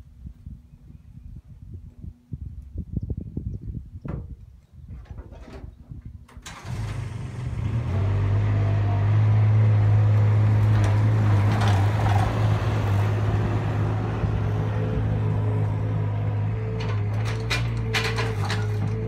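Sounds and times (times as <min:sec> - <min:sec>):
loader engine starting and running: 0:06.3 - 0:19.0.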